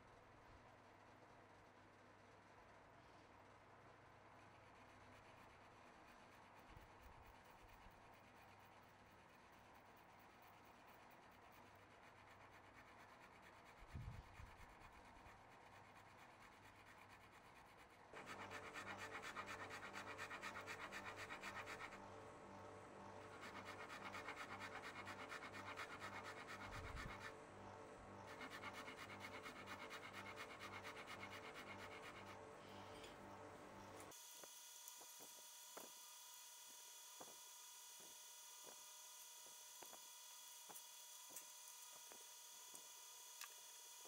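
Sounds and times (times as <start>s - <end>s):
metal file scraping: 17.8s - 22.3s, 23.1s - 34.1s.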